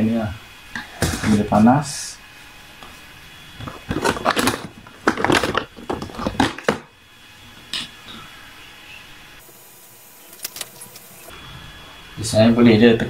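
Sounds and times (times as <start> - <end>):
plastic rustling and crinkling: 3.5 - 6.9.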